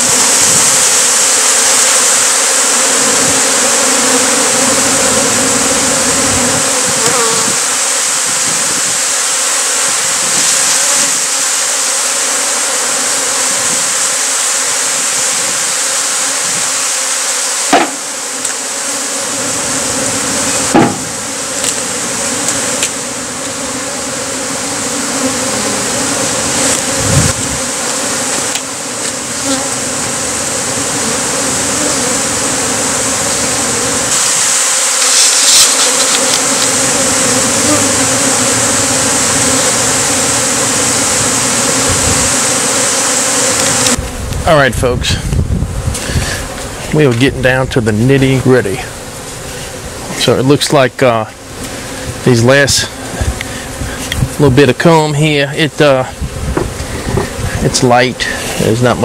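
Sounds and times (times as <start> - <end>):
bees buzzing: 0.0 - 59.0
sharp knocks: 17.7 - 18.0, 20.7 - 21.2.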